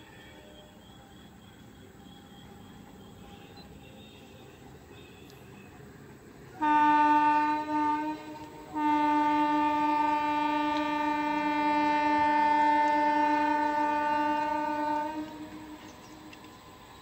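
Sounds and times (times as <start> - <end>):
train horn blasts: 6.6 - 16.4.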